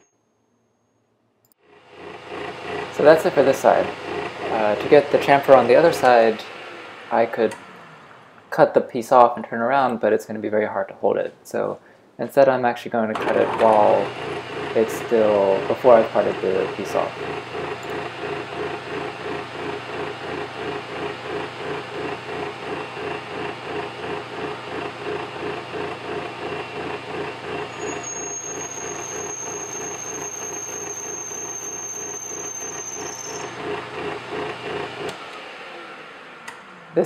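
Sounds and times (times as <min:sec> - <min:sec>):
metal lathe cutting: 0:01.6 - 0:08.2, 0:13.2 - 0:36.6
high-pitched squeal: 0:01.8 - 0:09.2, 0:27.7 - 0:33.7.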